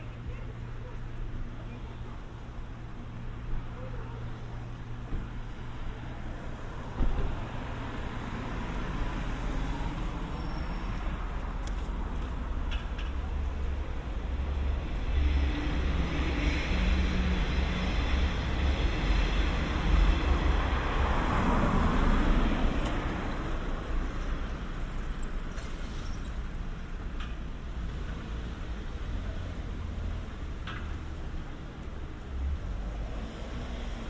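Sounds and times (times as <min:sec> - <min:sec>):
car passing by: 0:15.0 - 0:24.9, 0:32.3 - 0:34.0.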